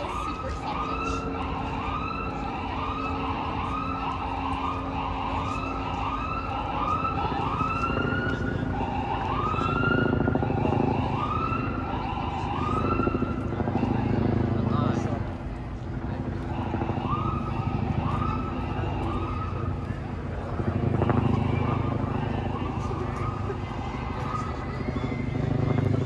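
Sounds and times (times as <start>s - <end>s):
emergency siren sweeping: 0.0s - 26.0s
traffic rumble: 0.0s - 26.0s.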